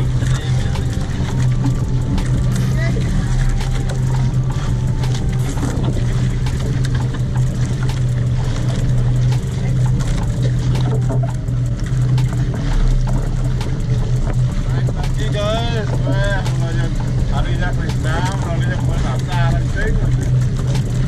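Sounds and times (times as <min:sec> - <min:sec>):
boat engine humming: 0:00.0 - 0:21.0.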